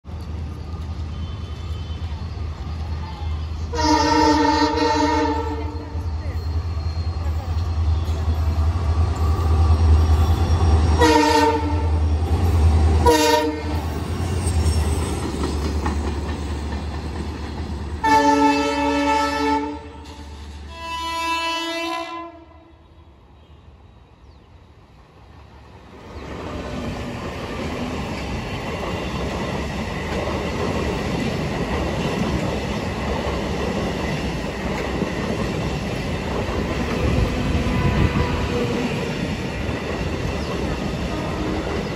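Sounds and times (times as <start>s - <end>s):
train horn blasts: 3.7s - 6.0s, 11.0s - 12.0s, 13.0s - 13.8s, 18.0s - 23.6s, 37.6s - 38.7s
train wheels clattering on rails: 13.8s - 18.0s, 26.1s - 41.9s.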